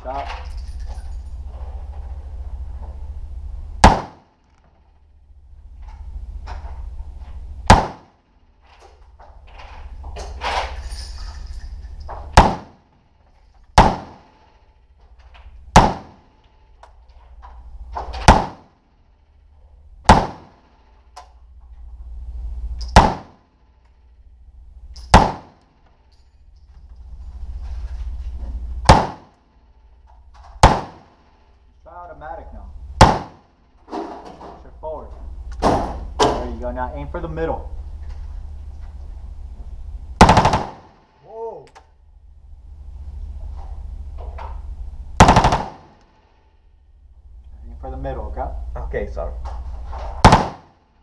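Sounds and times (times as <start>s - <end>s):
gunshots with short echo: 3.8s - 4.3s, 7.6s - 8.2s, 12.3s - 12.9s, 13.8s - 14.5s, 15.7s - 16.4s, 18.2s - 18.8s, 20.0s - 20.8s, 22.9s - 23.5s, 25.1s - 25.6s, 28.8s - 29.4s, 30.6s - 31.2s, 33.0s - 33.5s, 40.2s - 41.1s, 45.2s - 46.0s, 50.2s - 50.8s
rifle shots: 3.8s - 4.4s, 7.6s - 8.2s, 12.3s - 12.9s, 13.7s - 14.6s, 15.7s - 16.4s, 18.1s - 18.8s, 20.0s - 20.8s, 22.9s - 23.5s, 25.0s - 25.7s, 28.8s - 29.4s, 30.6s - 31.3s, 33.0s - 33.5s, 40.2s - 41.2s, 45.2s - 46.2s, 50.2s - 50.8s.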